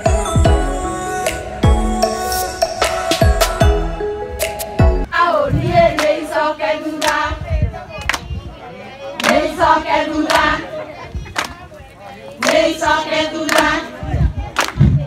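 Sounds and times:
women singing together: 5.0 - 7.8, 9.2 - 11.1, 12.4 - 15.0.

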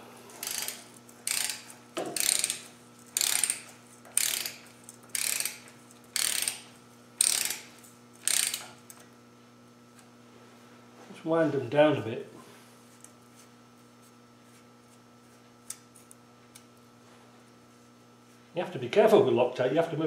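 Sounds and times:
ratchet wrench clicking: 0.4 - 9.0.

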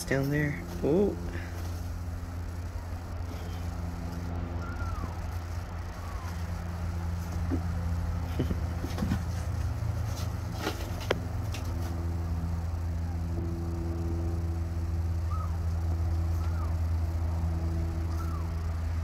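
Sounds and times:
low mechanical hum: 0.0 - 19.0
kitten mewing: 3.4 - 6.6, 15.3 - 15.7.

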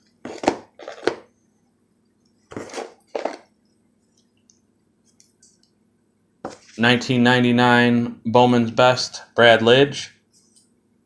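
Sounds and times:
cards scraping: 0.2 - 1.3, 2.5 - 3.4.

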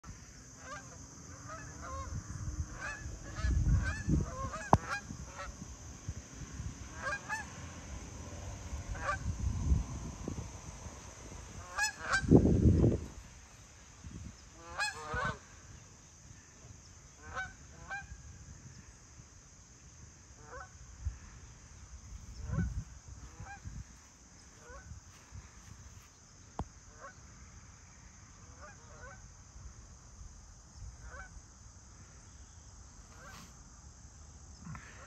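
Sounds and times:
geese honking: 0.6 - 2.1, 2.7 - 5.6, 6.9 - 7.6, 8.9 - 9.2, 11.6 - 12.4, 14.5 - 15.6, 17.2 - 18.2, 20.4 - 20.8, 22.4 - 23.7, 24.6 - 24.9.

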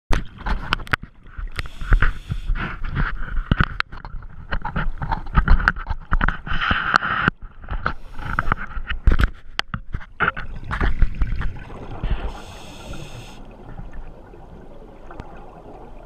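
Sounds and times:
underwater exhaled bubbles rushing: 10.4 - 16.0.

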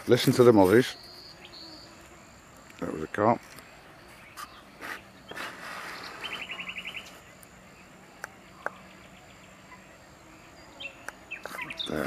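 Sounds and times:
mosquitoes whining: 0.3 - 2.9, 3.8 - 8.0.

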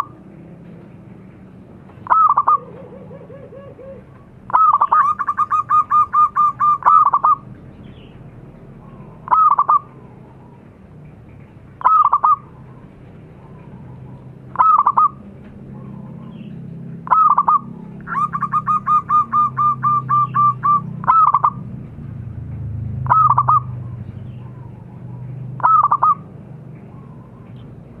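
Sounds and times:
dove cooing: 2.0 - 7.5, 8.8 - 10.6, 11.8 - 21.7, 23.0 - 27.6.

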